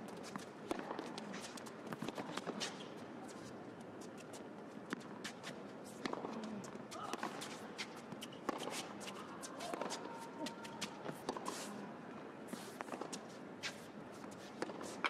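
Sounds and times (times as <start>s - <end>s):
shoes squeaking on court: 0.1s - 6.6s.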